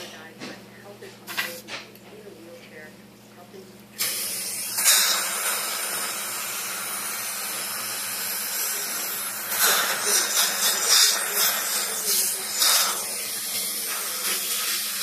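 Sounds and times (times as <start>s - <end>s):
faint motor hum: 0.0s - 15.0s
dental suction hissing: 4.0s - 15.0s.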